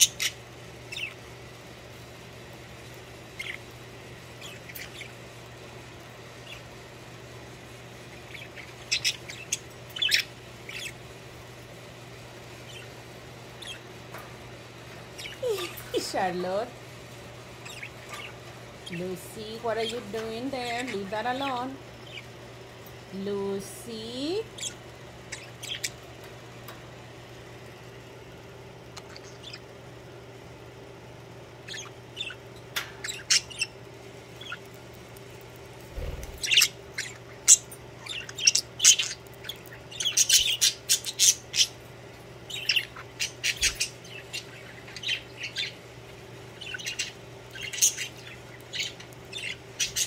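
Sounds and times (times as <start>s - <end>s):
budgerigars chirping: 0.0s - 1.2s, 3.4s - 3.7s, 4.4s - 5.2s, 8.1s - 11.0s, 12.6s - 13.0s, 13.6s - 13.9s, 17.6s - 19.0s, 20.6s - 22.3s, 24.6s - 26.0s, 31.6s - 33.8s, 34.4s - 34.7s, 36.0s - 41.8s, 42.4s - 45.8s, 46.6s - 50.0s
faint low hum: 0.0s - 50.0s.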